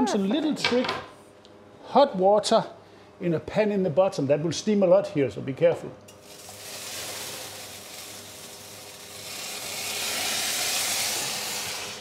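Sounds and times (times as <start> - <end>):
water hissing into steam: 6.2 - 12.0.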